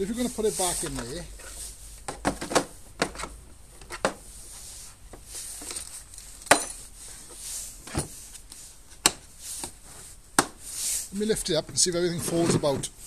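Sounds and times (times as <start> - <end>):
plastic case rustling and knocks: 2.1 - 4.2.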